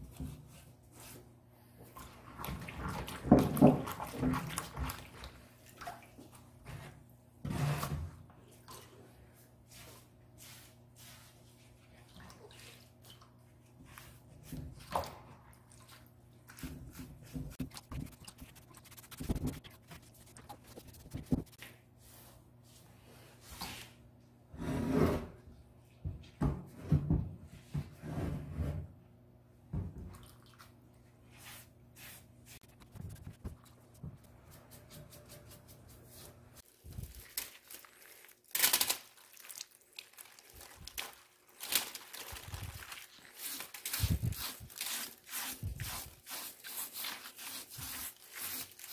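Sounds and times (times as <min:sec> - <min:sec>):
wet sponge scrubbing ceramic: 0:08.6 - 0:24.0, 0:30.4 - 0:36.7, 0:42.5 - 0:48.9.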